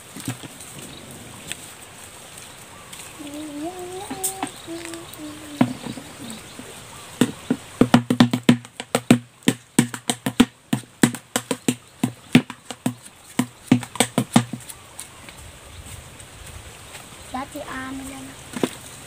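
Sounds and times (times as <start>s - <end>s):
rapid sharp knocks: 5.6s - 6.0s, 7.2s - 14.7s.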